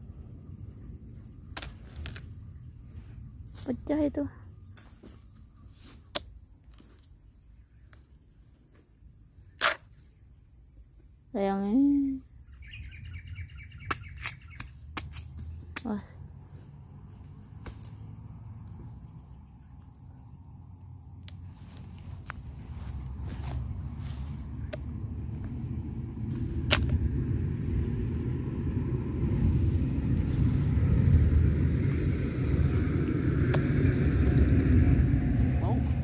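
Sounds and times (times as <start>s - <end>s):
insects chirring: 0.0s - 36.0s
low rumble: 16.3s - 36.0s
sickle striking tubers: 26.6s - 27.0s.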